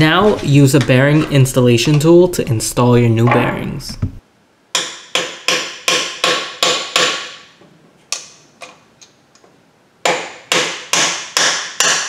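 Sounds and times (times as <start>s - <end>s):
hammer striking metal tool: 4.8s - 7.5s, 10.0s - 12.0s.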